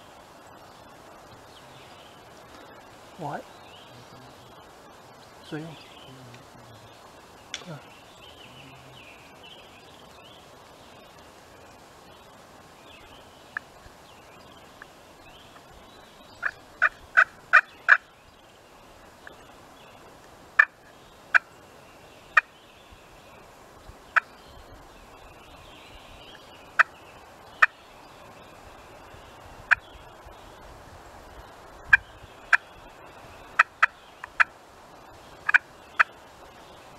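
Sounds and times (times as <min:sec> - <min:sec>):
background hiss of woods: 0:00.0 - 0:36.9.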